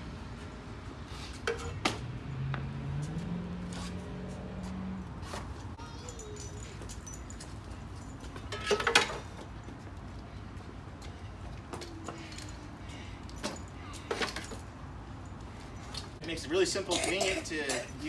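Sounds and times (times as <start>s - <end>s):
garden tools clattering on metal: 5.8s - 9.5s, 16.9s - 18.0s.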